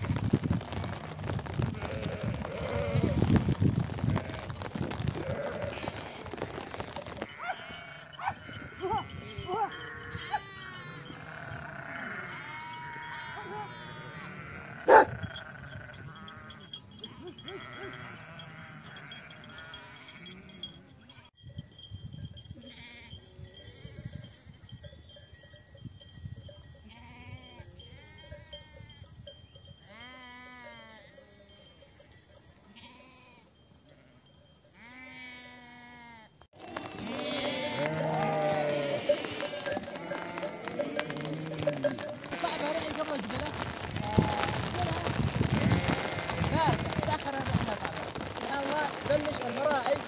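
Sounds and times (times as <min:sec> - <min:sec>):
sheep bleating: 0:01.8 - 0:03.2, 0:04.1 - 0:04.6, 0:05.2 - 0:06.5, 0:07.2 - 0:21.3, 0:34.8 - 0:50.0.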